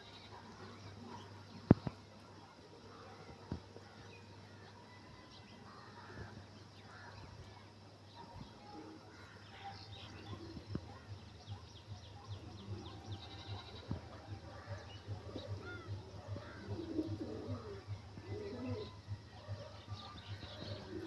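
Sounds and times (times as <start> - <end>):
pigeons cooing: 12.5 - 21.0.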